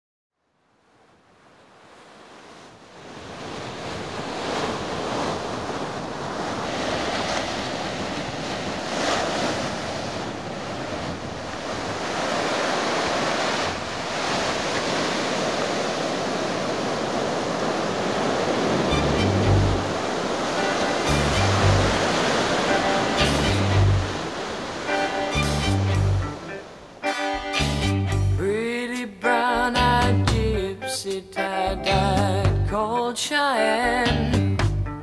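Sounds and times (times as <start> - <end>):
ocean waves breaking: 1.2 - 28.8.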